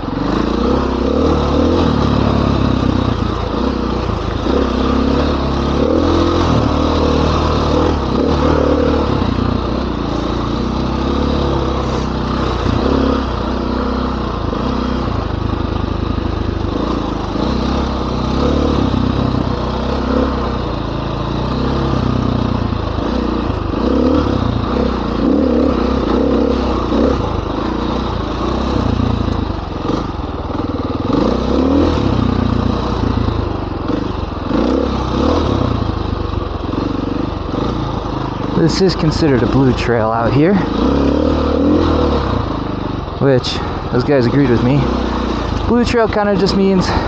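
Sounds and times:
dirt bike engine revving: 0:00.0 - 0:47.0.

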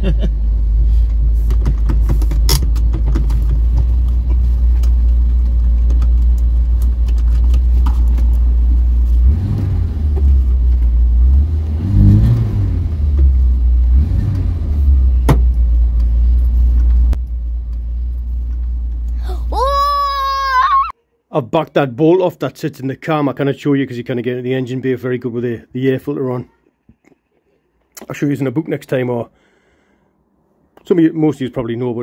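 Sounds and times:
car engine idling and revving: 0:00.0 - 0:19.3.

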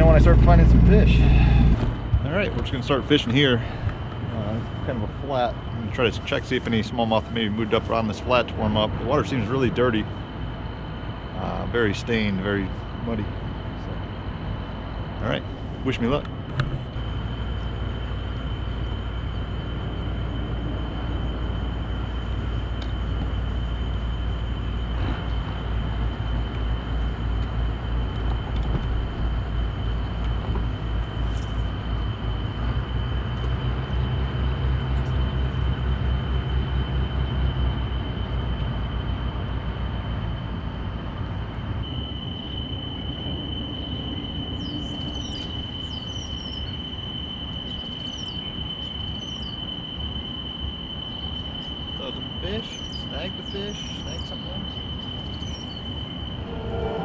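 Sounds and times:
boat motor humming: 0:00.0 - 0:06.1, 0:56.3 - 0:57.0
high-pitched whine: 0:00.0 - 0:57.0
birds chirping: 0:52.5 - 0:57.0.

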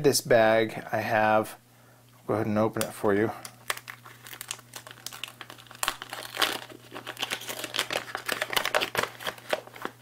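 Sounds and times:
foil bag crinkling: 0:03.4 - 0:10.0.

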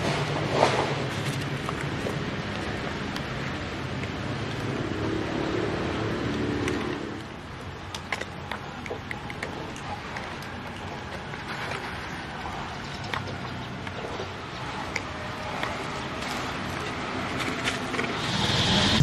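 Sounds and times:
outdoor background noise: 0:00.0 - 0:19.0.

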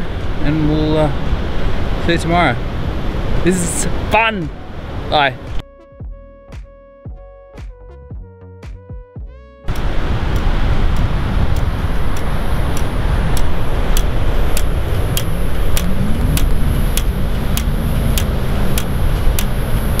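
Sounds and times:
regular sharp tick: 0:09.7 - 0:20.0
wind buffeting microphone: 0:09.7 - 0:20.0.

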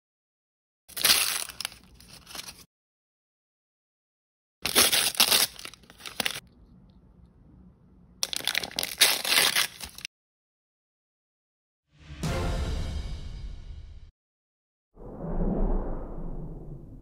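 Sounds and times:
plastic wrapper tearing and crinkling: 0:00.9 - 0:02.7, 0:04.6 - 0:06.4, 0:08.2 - 0:10.1.

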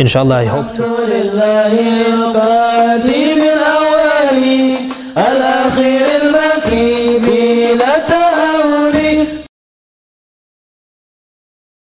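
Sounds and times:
person chanting melismatic melody: 0:00.0 - 0:09.5.

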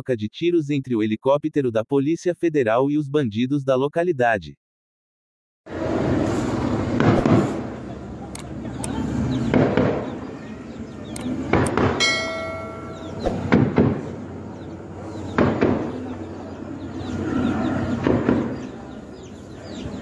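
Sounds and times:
bell-like ding: 0:12.0 - 0:13.4.

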